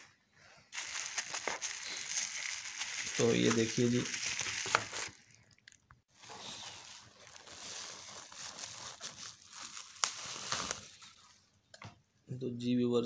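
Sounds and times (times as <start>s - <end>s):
bubble wrap crinkling: 0.7s - 11.4s
sharp plastic crackles: 0.8s - 11.2s.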